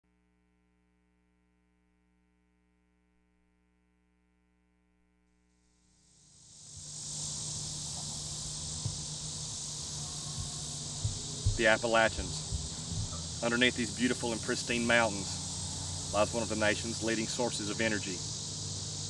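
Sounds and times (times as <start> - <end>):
faint hum: 5.6 - 19.0
insects chirring: 6.0 - 19.0
small bumps: 7.9 - 13.9
low rumble: 8.1 - 16.2.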